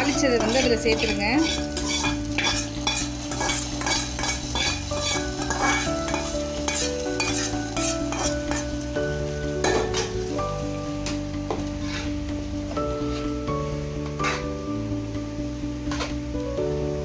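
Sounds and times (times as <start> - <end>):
metal spoon scraping metal pan: 0.0 - 8.8, 9.6 - 10.2, 11.5 - 12.2, 13.0 - 13.4, 14.1 - 14.6, 15.9 - 16.2
hot ghee sizzling: 0.0 - 17.0.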